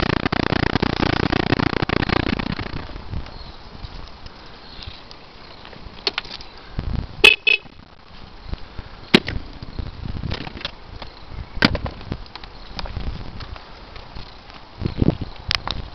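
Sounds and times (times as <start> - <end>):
scooter horn toots: 7.2 - 7.8.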